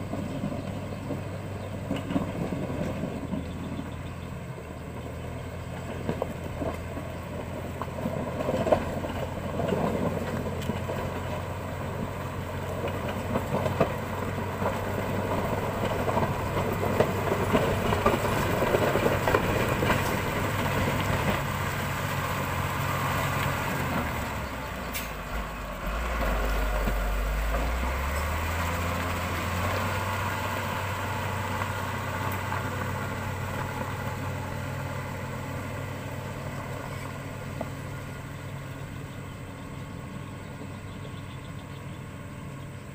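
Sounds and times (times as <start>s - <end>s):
diesel engine running under load: 0.0s - 42.9s.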